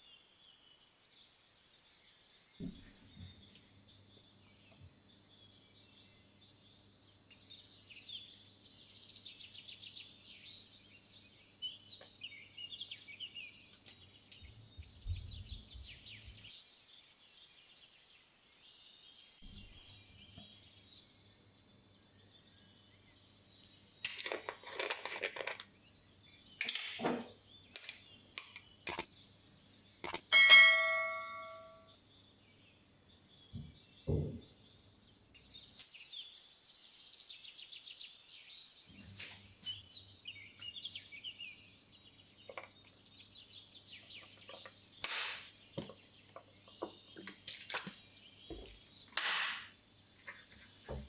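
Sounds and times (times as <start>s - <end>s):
faint bird chirping: 0.0s - 49.2s.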